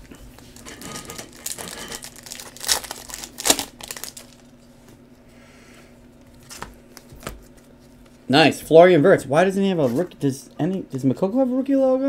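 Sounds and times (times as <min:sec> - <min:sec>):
plastic wrapper crinkling: 0:00.4 - 0:04.5.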